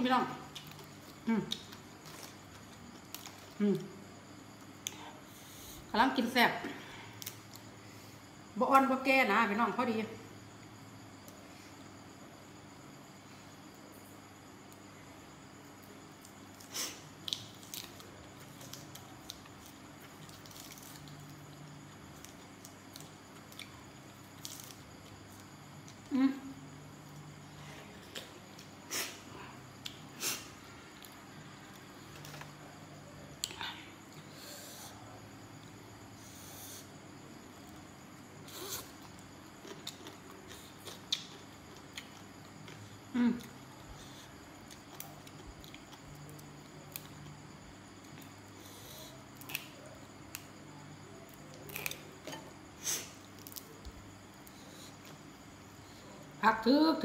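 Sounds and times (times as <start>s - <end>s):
faint low hum: 0.0s - 57.0s
chewing: 38.5s - 47.3s.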